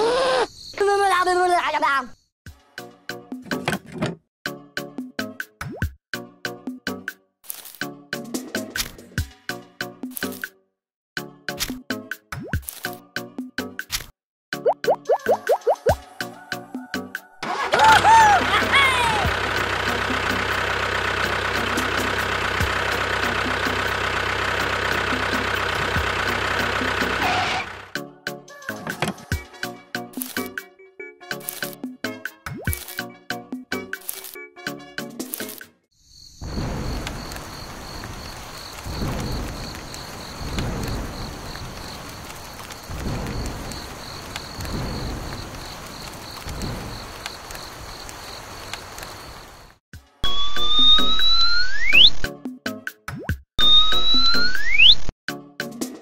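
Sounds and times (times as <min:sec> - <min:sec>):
tractor engine idling: 0:17.4 - 0:28.0
rain falling: 0:18.1 - 0:27.2, 0:36.4 - 0:49.8
thunder rolling: 0:36.4 - 0:48.7
fast-pulsing high tone: 0:53.6 - 0:55.1.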